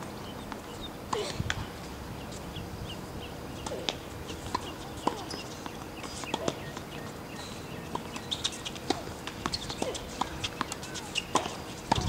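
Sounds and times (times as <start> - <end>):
tennis balls hit and bouncing: 3.5 - 7.2, 7.8 - 12.0.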